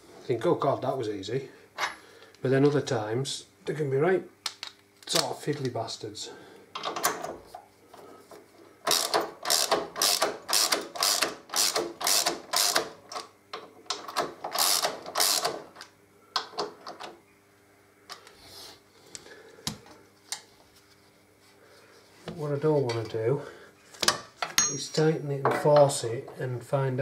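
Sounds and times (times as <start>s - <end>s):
socket ratchet clicking: 8.9s - 12.9s, 13.9s - 15.6s.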